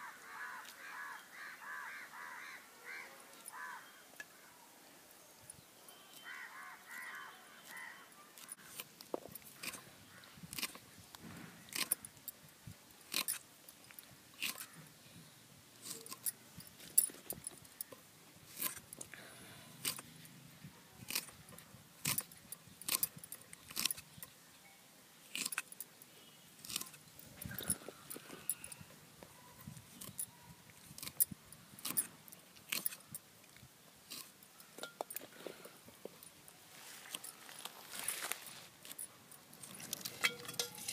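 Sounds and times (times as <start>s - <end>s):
knife cutting okra pods: 7.6s - 12.4s, 13.0s - 13.4s, 14.4s - 14.9s, 15.8s - 19.1s, 19.8s - 20.1s, 21.0s - 24.4s, 25.3s - 25.8s, 26.6s - 28.6s, 30.8s - 33.2s, 34.0s - 35.4s.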